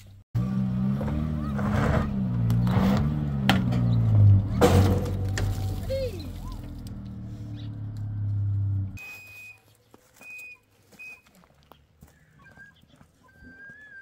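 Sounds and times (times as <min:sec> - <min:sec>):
low engine-like hum: 0:00.4 - 0:09.0
birds whistling: 0:12.0 - 0:14.0.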